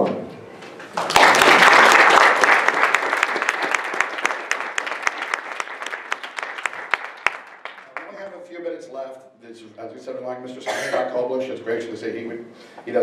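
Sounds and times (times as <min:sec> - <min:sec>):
audience applauding: 0:00.8 - 0:08.3.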